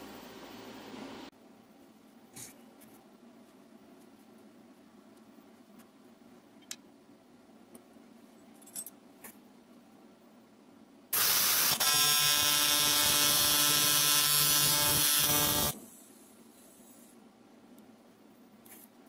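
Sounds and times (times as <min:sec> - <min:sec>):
welding arc buzzing: 0:11.2 - 0:15.8.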